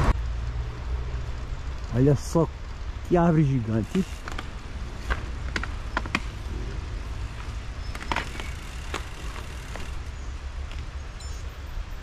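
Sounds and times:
bike clicks and rattles: 3.8s - 10.9s.

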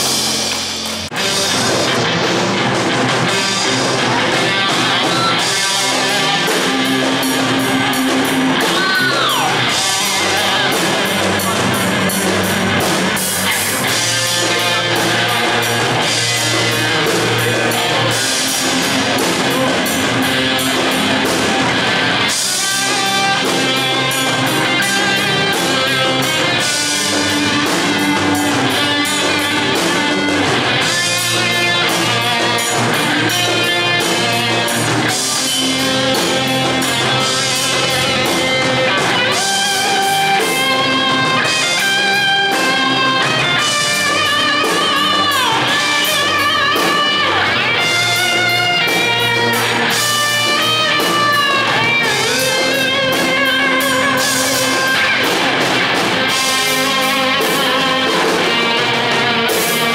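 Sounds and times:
bass guitar: 0.0s - 59.9s
drum kit: 0.0s - 59.9s
electric guitar: 0.0s - 59.9s.

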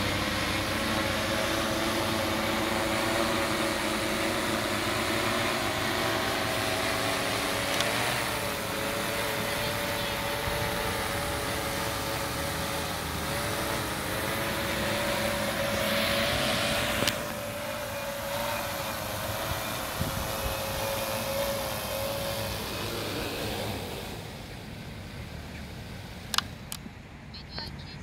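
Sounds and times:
drone propellers humming: 0.0s - 28.0s
sharp click: 26.3s - 26.9s.

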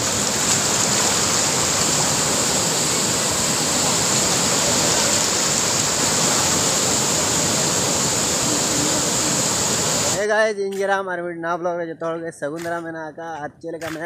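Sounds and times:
river rushing through rapids: 0.0s - 10.2s.

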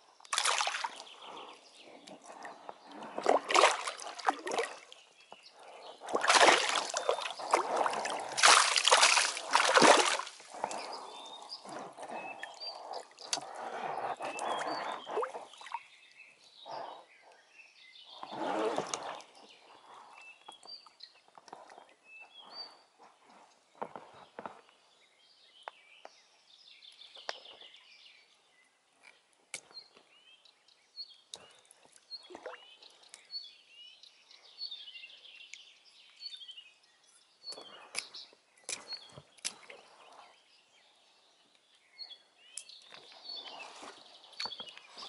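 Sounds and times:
water splashing and sloshing: 0.2s - 15.8s, 18.3s - 19.4s, 31.9s - 32.7s.

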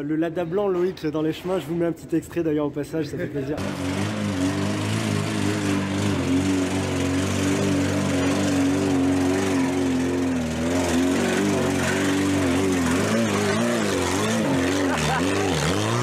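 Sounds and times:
car engine running under load: 3.6s - 16.0s.

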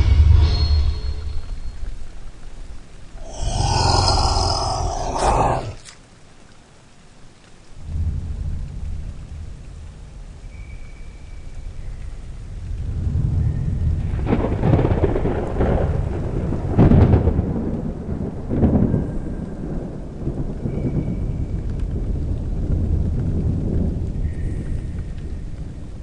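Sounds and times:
steady rain: 1.4s - 26.0s
thunder rolling: 14.0s - 21.0s
loud thunder crack: 14.1s - 18.9s.

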